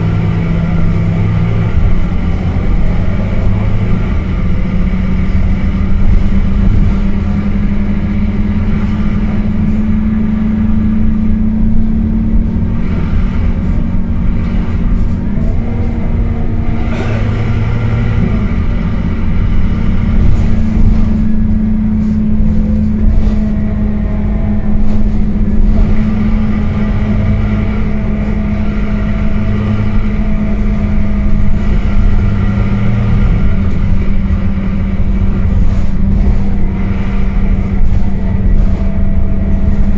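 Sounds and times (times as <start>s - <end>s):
bus diesel engine drone: 0.0s - 39.9s.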